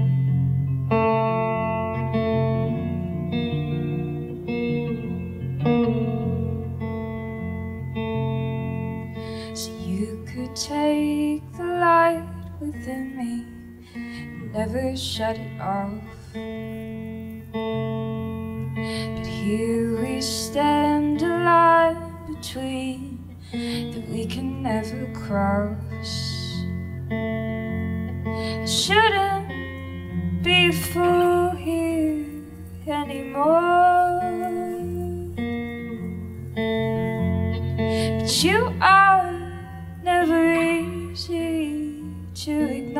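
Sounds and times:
strummed guitar: 0.0s - 42.9s
woman singing into a microphone: 9.2s - 17.0s, 18.6s - 26.9s, 28.1s - 42.9s.

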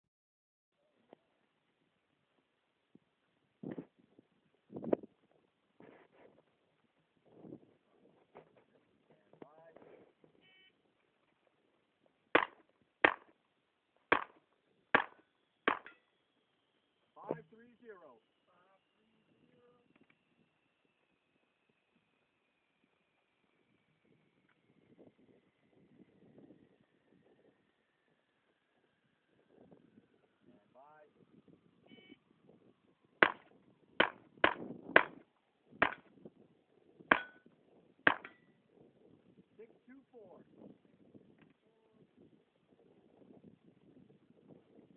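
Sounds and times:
pistol shots: 12.4s - 13.3s, 14.1s - 14.4s, 15.0s - 16.0s, 33.2s - 33.4s, 35.8s - 36.0s, 37.1s - 37.4s, 38.1s - 38.4s
shot timer beep: 15.7s - 16.1s.

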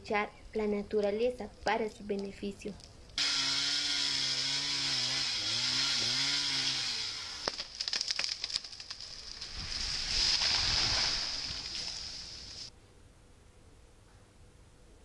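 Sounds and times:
chainsaw running and revving: 3.2s - 7.7s
tree crashing through branches: 3.5s - 12.7s
wood cracking and snapping: 6.4s - 12.6s.

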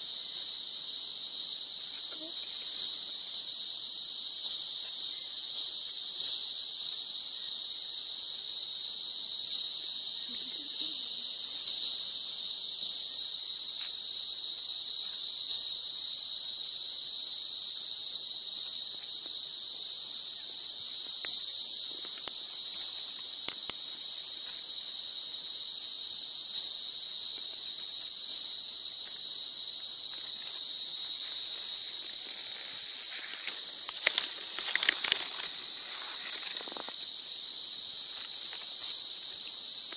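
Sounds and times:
insects droning: 0.0s - 39.9s
faint rustles and ticks: 20.5s - 24.6s, 30.0s - 37.2s.

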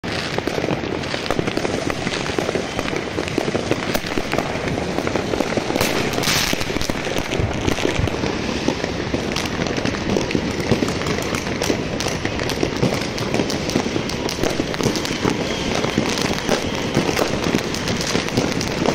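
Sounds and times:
firecrackers crackling: 0.0s - 18.9s.

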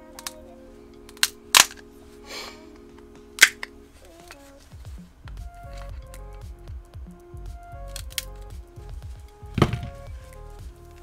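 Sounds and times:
background music: 0.0s - 11.0s
battery pack parts knocking: 9.2s - 10.3s.

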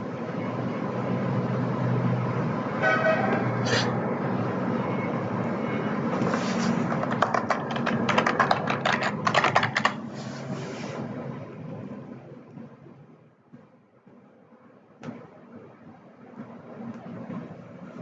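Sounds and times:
computer keyboard typing: 6.8s - 10.1s.

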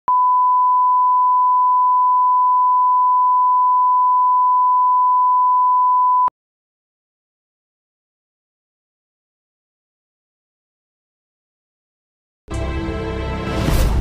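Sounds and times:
steady sine test tone: 0.1s - 6.3s.

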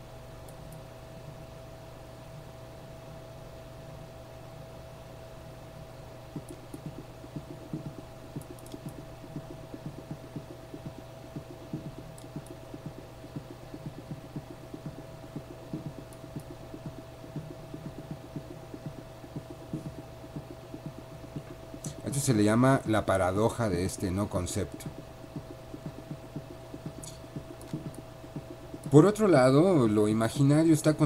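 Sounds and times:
electrical hum: 0.0s - 31.0s
soft irregular tapping: 6.4s - 22.5s, 24.4s - 29.8s.

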